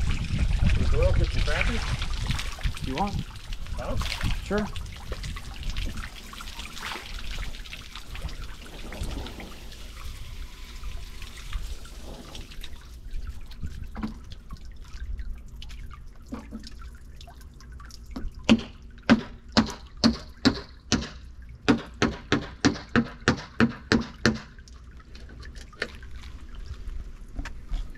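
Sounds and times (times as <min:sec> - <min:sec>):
water sloshing and dripping: 0:00.0 - 0:27.9.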